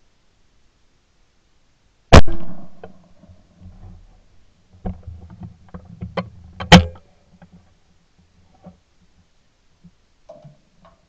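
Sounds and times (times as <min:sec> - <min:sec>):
shotgun shot: 0:02.1 - 0:02.9
gun handling clicks and knocks: 0:04.8 - 0:07.6.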